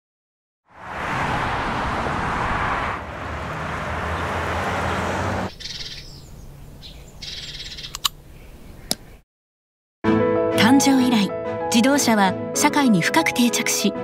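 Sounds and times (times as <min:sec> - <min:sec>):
traffic noise: 0:00.7 - 0:08.7.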